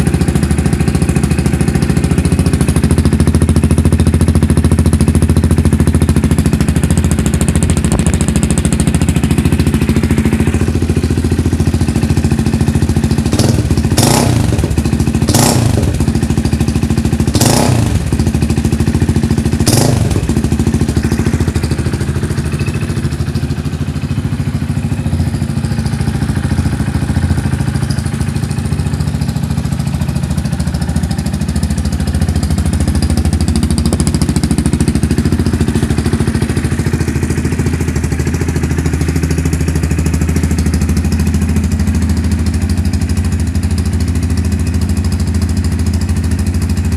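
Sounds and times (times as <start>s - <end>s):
motorcycle engine idling: 0.0s - 46.9s
motorcycle engine throttle blips: 0.0s - 46.9s.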